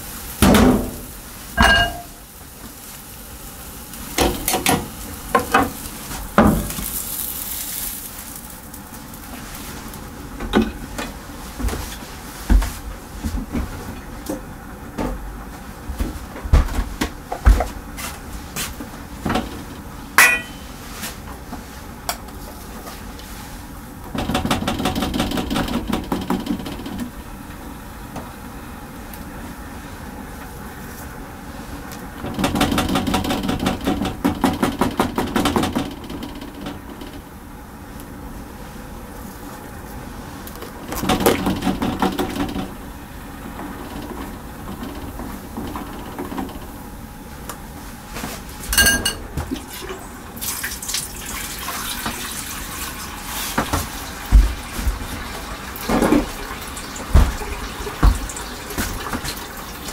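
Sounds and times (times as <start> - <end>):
pots and pans clinking: 1.6 - 2.2, 20.2 - 20.8, 48.7 - 49.5
short metallic ring: 20.2 - 20.7.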